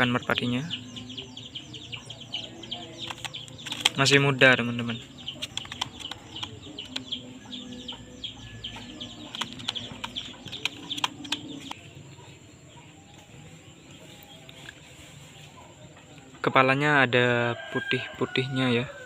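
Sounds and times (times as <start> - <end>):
birds chirping: 0.0 - 19.0
sharp clicks: 3.0 - 4.2, 5.3 - 7.2, 9.3 - 11.8.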